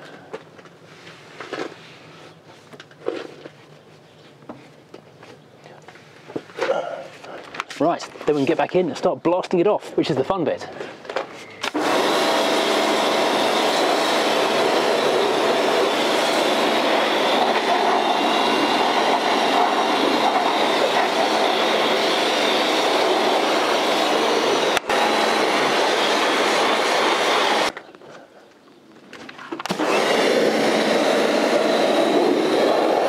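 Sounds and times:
pump motor humming: 11.6s - 27.7s, 29.6s - 33.0s
pressure washer water jet hissing: 11.7s - 27.7s, 29.7s - 33.0s.

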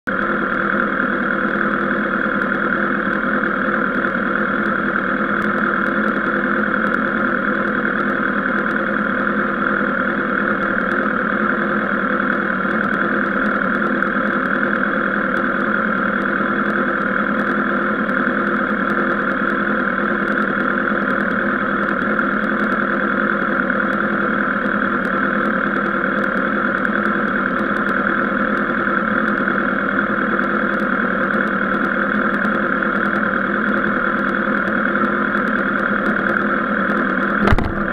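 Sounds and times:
motorcycle engine idling: 0.1s - 37.9s.

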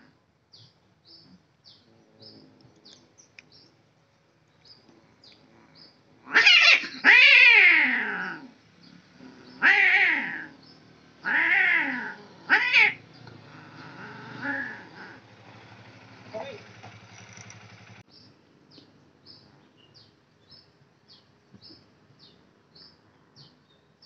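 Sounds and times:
cats yowling: 6.2s - 8.6s, 9.2s - 10.6s, 11.2s - 15.2s.

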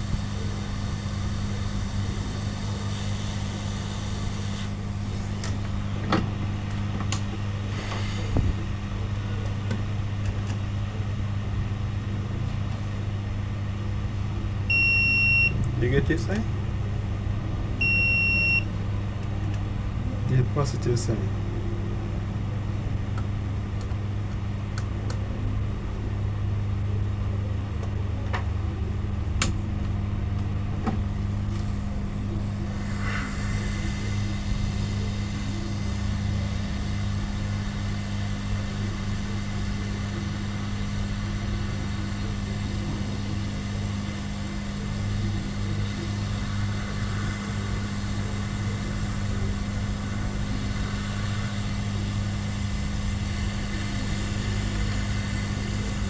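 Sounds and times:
hot-air gun hissing: 0.0s - 6.0s, 7.5s - 8.7s, 32.6s - 56.0s
constant low hum: 0.0s - 56.0s.

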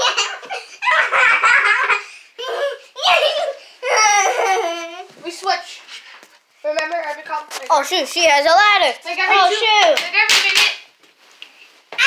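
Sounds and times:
children laughing: 0.0s - 5.2s.

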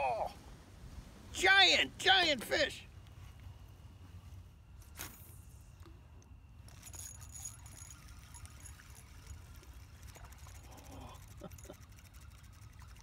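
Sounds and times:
fishing reel gears ticking: 6.6s - 13.0s.

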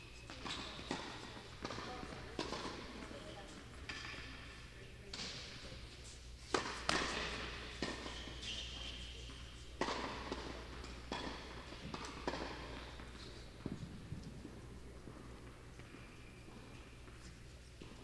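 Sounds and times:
tennis ball hits and bounces: 0.3s - 4.4s, 6.5s - 15.9s.

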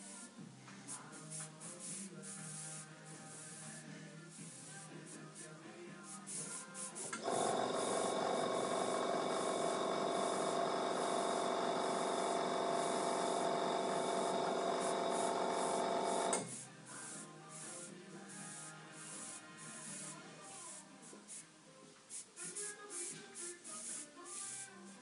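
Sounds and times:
faint background music: 0.0s - 25.0s
compressor motor humming: 7.1s - 16.5s.

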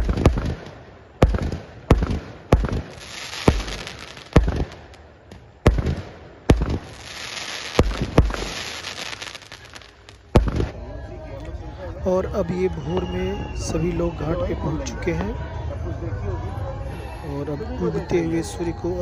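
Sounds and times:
fireworks crackling hiss: 0.0s - 10.8s
fireworks bangs: 0.0s - 10.9s.

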